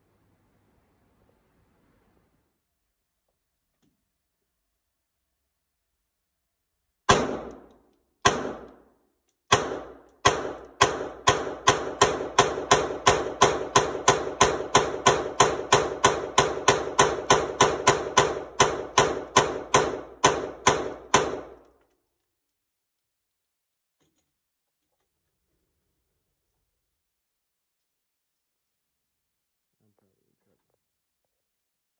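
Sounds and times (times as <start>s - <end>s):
pistol gunshots indoors: 7.0s - 22.0s.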